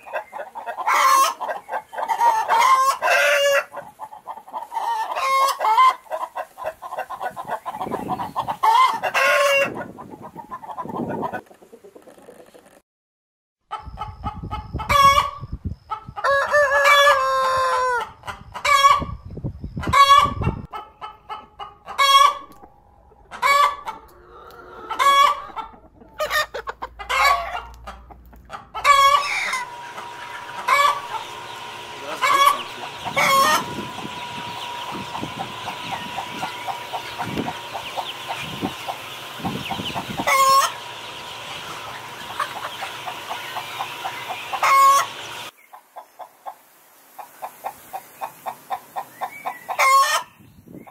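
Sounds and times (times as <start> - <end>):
hens clucking: 0.0 - 12.8, 13.7 - 19.2, 19.8 - 46.6, 47.2 - 50.9
rooster crowing: 16.3 - 18.0, 28.9 - 36.6
steady hum and hiss: 29.4 - 49.4.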